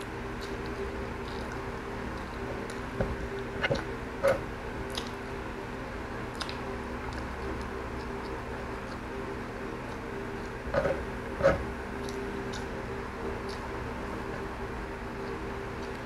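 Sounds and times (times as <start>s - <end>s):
person chewing: 0.0s - 5.3s, 6.3s - 9.1s, 9.9s - 13.8s
low hum: 0.0s - 16.0s.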